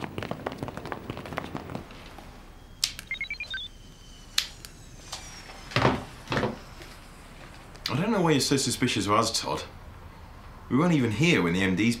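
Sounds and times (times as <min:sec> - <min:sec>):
faint high electronic whine: 0:02.4 - 0:08.9
rising electronic beeps: 0:03.0 - 0:04.4.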